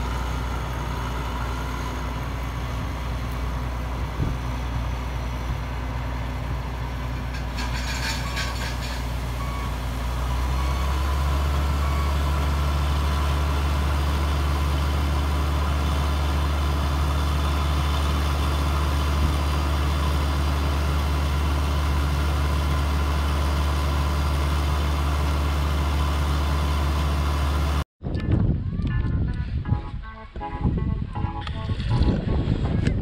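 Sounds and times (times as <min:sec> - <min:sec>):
combine harvester engine running: 0:00.0 - 0:27.8.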